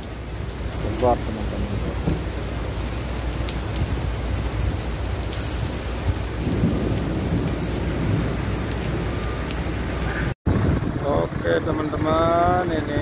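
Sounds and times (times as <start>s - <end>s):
heavy rain on asphalt and cars: 0.0s - 13.0s
low rumble of thunder: 0.3s - 12.1s.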